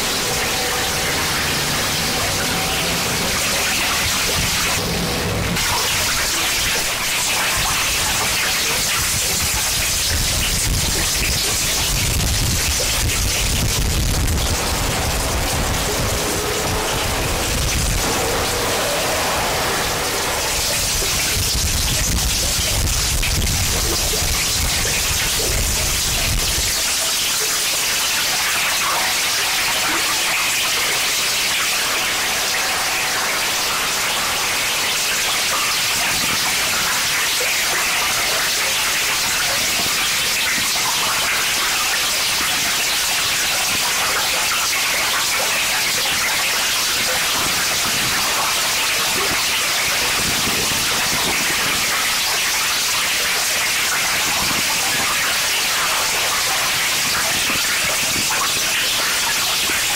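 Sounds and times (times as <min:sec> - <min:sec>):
loud electronic static roar: 0:00.0 - 0:59.9
low rumble: 0:12.1 - 0:23.8.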